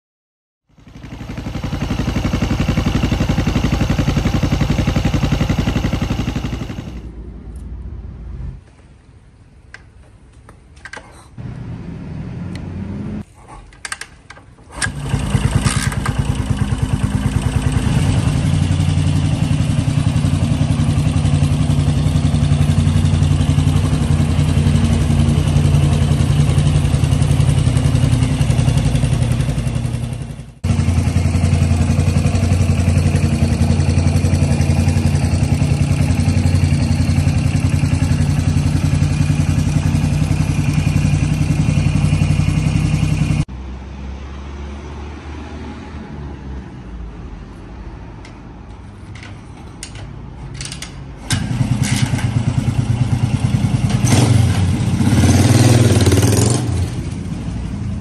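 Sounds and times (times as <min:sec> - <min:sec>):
motorcycle engine idling: 0:00.7 - 0:07.1, 0:14.9 - 0:43.4, 0:51.4 - 0:58.0
kick-start knocks and clatters: 0:14.7 - 0:16.8.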